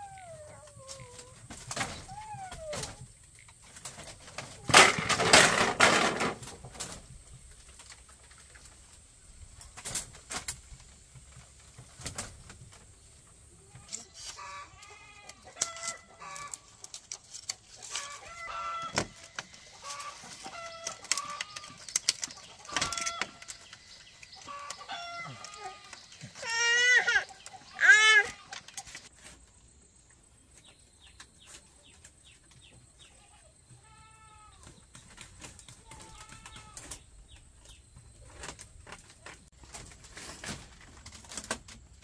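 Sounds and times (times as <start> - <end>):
bamboo strips rustling: 0.0 - 32.9, 34.5 - 42.0
chickens clucking: 10.8 - 29.5.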